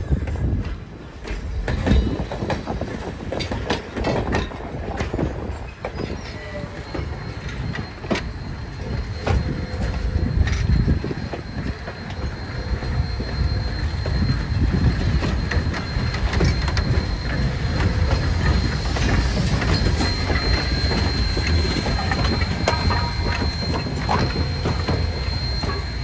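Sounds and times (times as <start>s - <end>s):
train wheels rumbling on rails: 0.0s - 26.0s
high wheel squeal: 5.6s - 26.0s.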